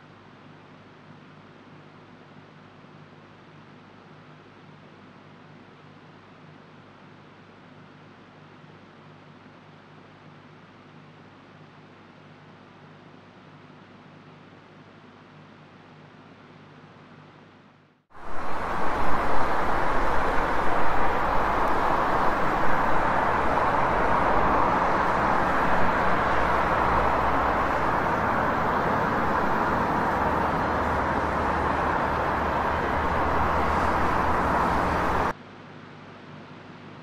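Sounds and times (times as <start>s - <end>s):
loud rushing noise: 18.2s - 35.3s.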